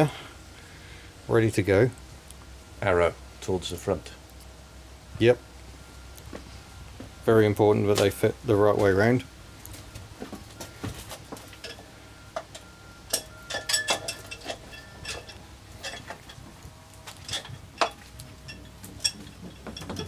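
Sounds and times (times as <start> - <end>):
metallic clinks of tools: 12.5 - 16.4, 17.2 - 20.0.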